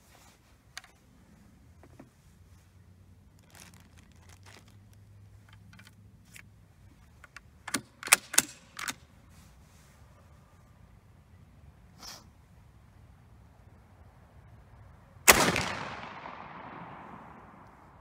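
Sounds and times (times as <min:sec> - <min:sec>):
rifle bolt action clacks: 0:07.2 - 0:09.0.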